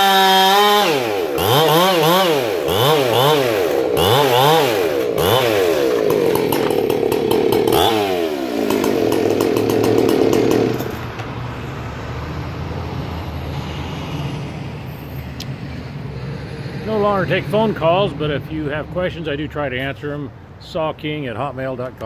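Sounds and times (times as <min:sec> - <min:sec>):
chainsaw revving and idling: 0:00.0 - 0:11.1.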